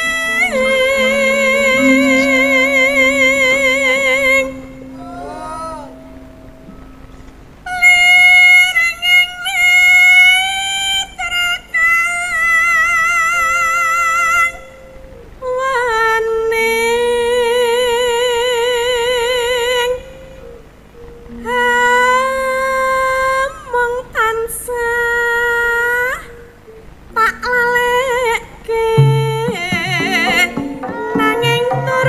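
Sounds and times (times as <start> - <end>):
woman singing with vibrato: 0.0 - 6.6, 21.3 - 26.3, 27.2 - 32.0
gamelan accompaniment: 0.0 - 9.4, 29.0 - 32.0.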